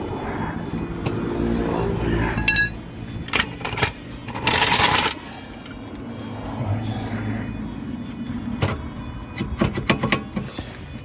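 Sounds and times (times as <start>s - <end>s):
metallic clink: 2.3s - 5.2s.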